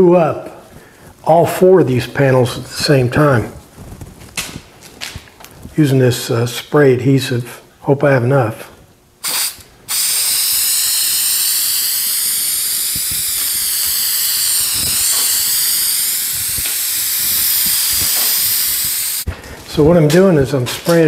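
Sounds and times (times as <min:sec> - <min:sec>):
aerosol spray hissing: 0:09.2 - 0:19.3.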